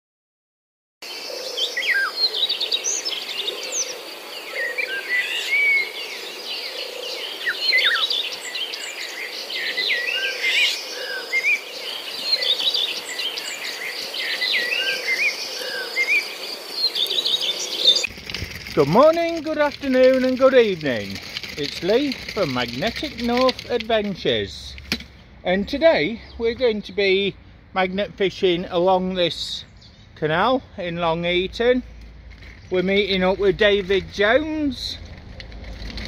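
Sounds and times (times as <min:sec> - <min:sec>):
birds chirping and singing: 0:01.0 - 0:18.1, 0:18.7 - 0:24.8.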